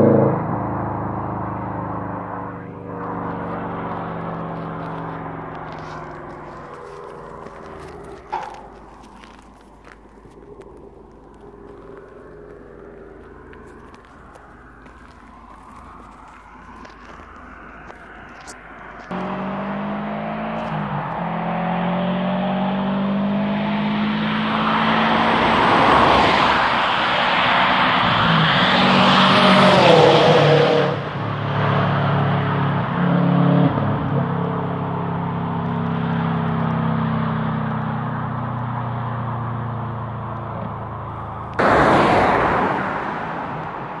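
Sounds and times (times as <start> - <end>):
car engine passing at speed: 0.0 - 44.0
sudden loud rush of noise: 41.6 - 44.0.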